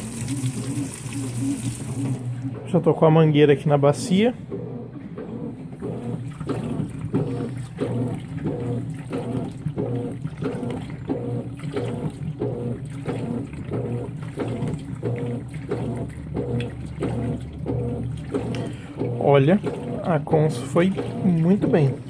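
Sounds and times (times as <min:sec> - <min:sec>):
washing machine swishing water: 0:00.0 - 0:22.0
low motor hum: 0:00.2 - 0:22.0.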